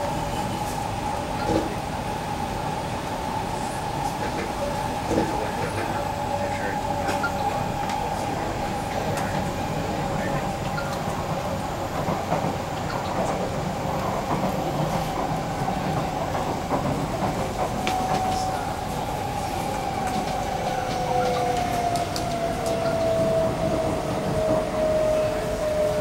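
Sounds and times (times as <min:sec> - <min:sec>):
rail clicks: 0:00.0 - 0:02.0, 0:04.0 - 0:26.0
train wheels rumbling on track: 0:00.0 - 0:26.0.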